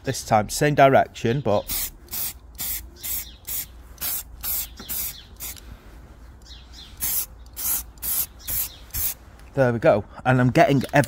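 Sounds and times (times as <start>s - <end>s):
spray can hissing bursts: 1.7s - 5.6s, 7.0s - 9.2s.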